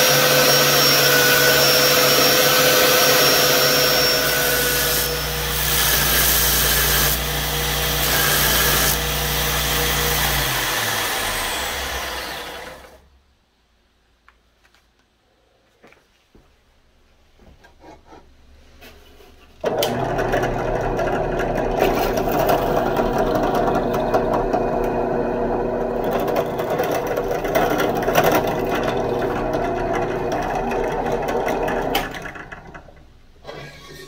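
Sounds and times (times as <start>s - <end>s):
drill press boring: 0.0s - 13.0s, 19.6s - 32.7s.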